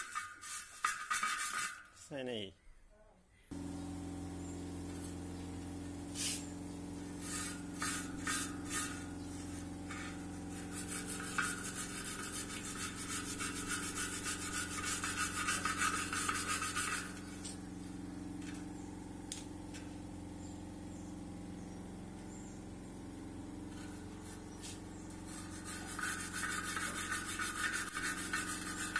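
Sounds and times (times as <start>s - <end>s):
scrubbing rust off metal rim: 0.0s - 1.9s, 6.2s - 17.6s, 23.7s - 28.9s.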